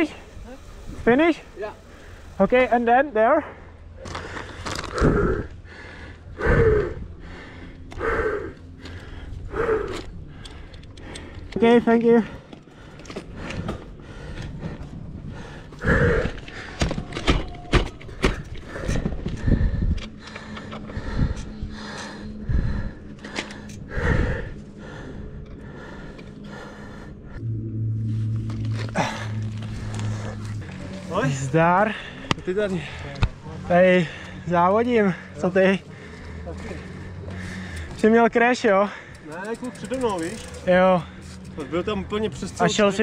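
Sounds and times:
person panting heavily: 0:03.4 - 0:11.6, 0:12.2 - 0:17.0, 0:18.1 - 0:27.4, 0:28.7 - 0:38.0
person breathing hard: 0:03.5 - 0:11.6, 0:12.2 - 0:17.2, 0:18.1 - 0:31.2, 0:31.9 - 0:33.4, 0:34.0 - 0:34.5, 0:35.1 - 0:38.0.

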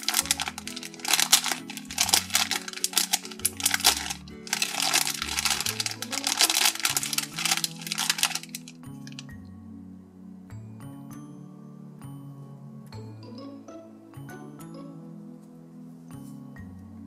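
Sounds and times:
plastic bag crinkling: 0:00.0 - 0:09.2
soft background music: 0:00.0 - 0:17.0.

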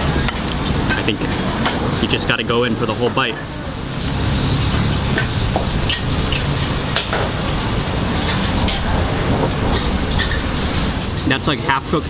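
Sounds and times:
low rumble and hiss: 0:00.0 - 0:12.0
dishes and cutlery clinking: 0:00.1 - 0:02.1.

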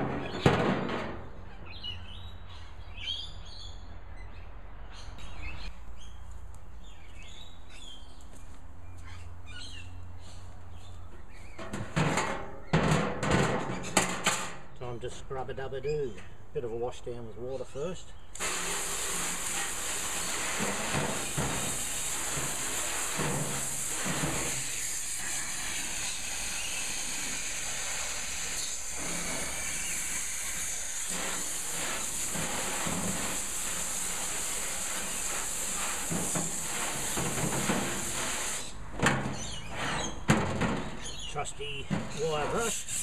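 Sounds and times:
hose nozzle spraying water: 0:18.3 - 0:40.3, 0:41.9 - 0:43.0
water splashing into metal wheelbarrow: 0:18.4 - 0:26.7, 0:30.6 - 0:41.2.

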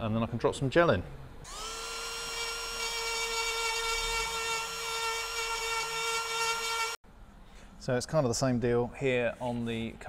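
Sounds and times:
rotary tool grinding whine: 0:01.5 - 0:07.0.

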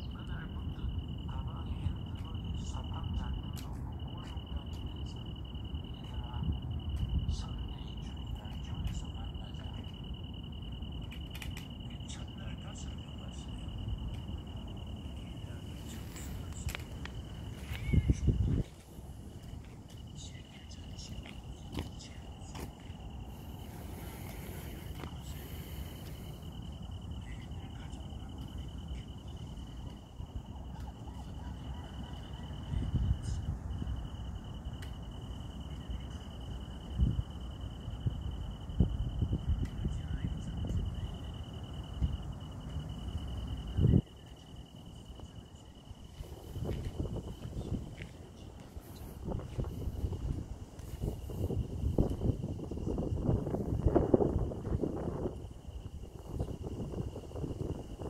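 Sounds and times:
insect trilling: 0:00.0 - 0:58.0
low rumble on microphone: 0:11.8 - 0:44.3, 0:45.0 - 0:58.0.

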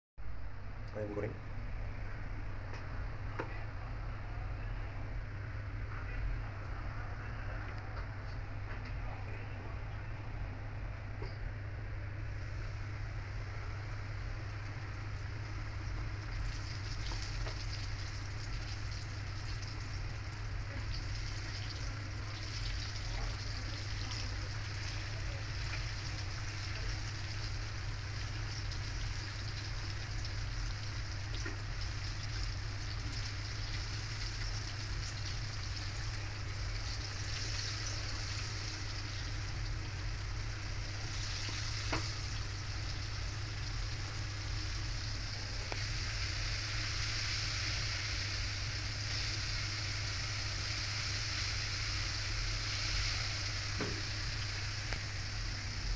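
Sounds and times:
low steady hum: 0:00.2 - 0:55.9
chicken deep-frying in oil: 0:12.2 - 0:55.9.

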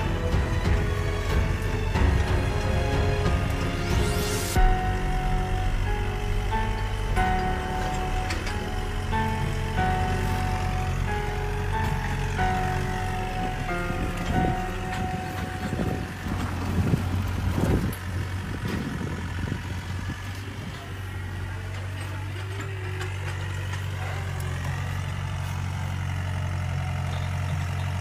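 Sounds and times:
motor idling hum: 0:00.0 - 0:28.0.

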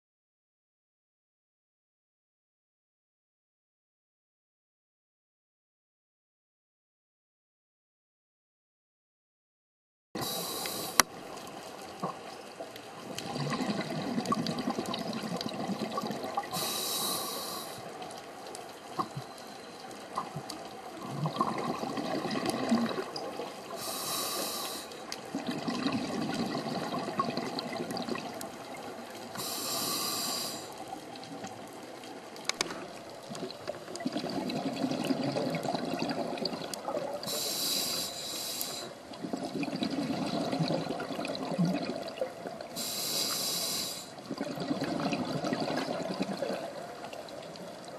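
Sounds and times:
regulator inhale hiss: 0:10.2 - 0:11.1, 0:16.5 - 0:18.0, 0:23.7 - 0:25.0, 0:29.4 - 0:30.8, 0:37.2 - 0:39.0, 0:42.8 - 0:44.2
exhaled bubbles rushing: 0:13.0 - 0:16.5, 0:20.1 - 0:23.8, 0:25.2 - 0:29.4, 0:33.2 - 0:37.3, 0:39.1 - 0:42.8, 0:44.2 - 0:47.9.

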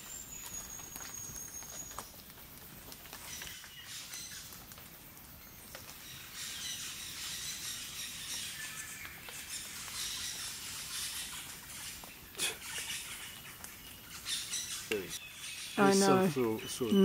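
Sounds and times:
parrot chirping and chattering: 0:09.4 - 0:17.0.

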